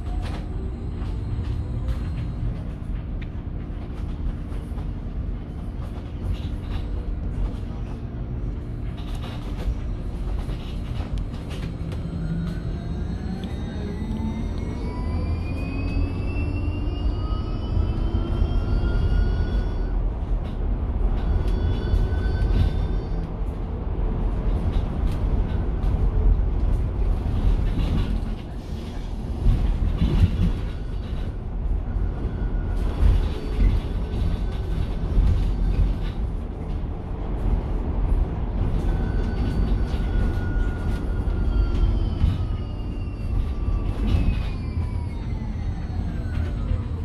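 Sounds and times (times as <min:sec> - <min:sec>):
electric bus drive whine: 0:00.0 - 0:47.0
low road and body rumble: 0:00.0 - 0:47.0.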